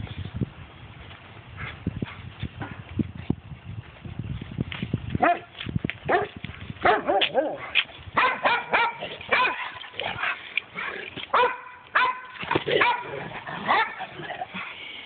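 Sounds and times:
dogs barking and yipping: 0:05.2 - 0:05.5, 0:06.1 - 0:14.9.

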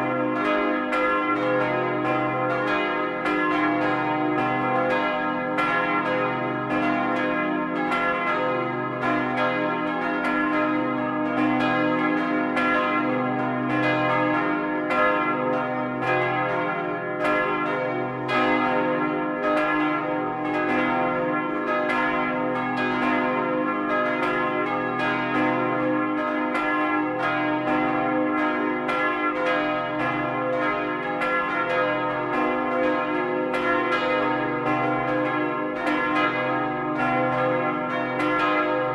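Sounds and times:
church bells ringing in full peal: 0:00.0 - 0:38.9.

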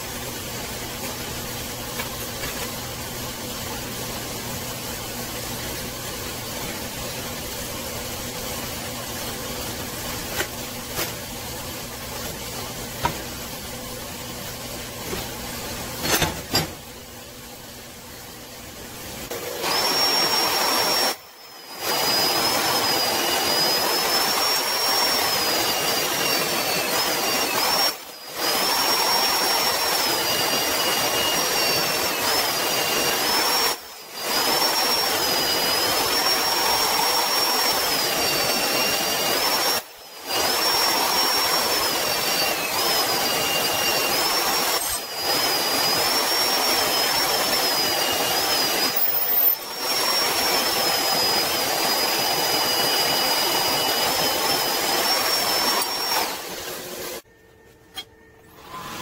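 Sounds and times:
bandsaw cutting steel: 0:16.0 - 0:16.8, 0:19.3 - 0:57.2, 0:57.9 - 0:59.0.

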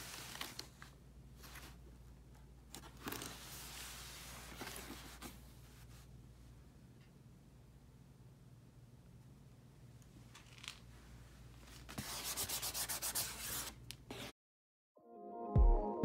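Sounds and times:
music: 0:15.0 - 0:16.0.

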